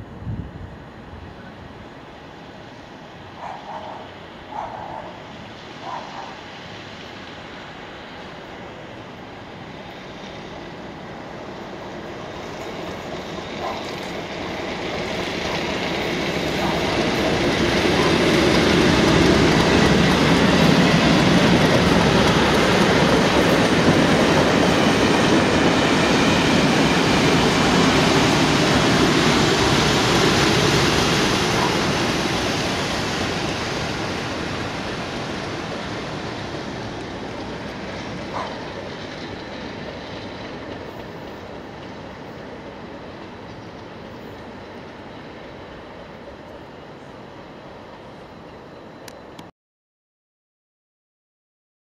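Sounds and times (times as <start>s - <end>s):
diesel locomotive engine: 0.0s - 49.5s
wheels on rails: 11.5s - 47.1s.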